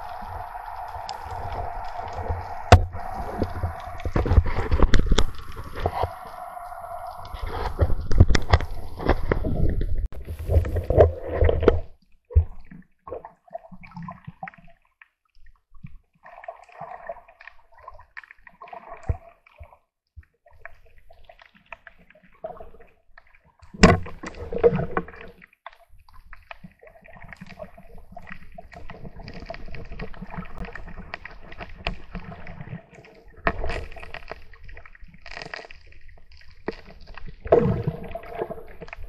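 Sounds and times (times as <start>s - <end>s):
faint underwater clicks: 0.0s - 12.7s
underwater sloshing and gurgling: 0.0s - 39.0s.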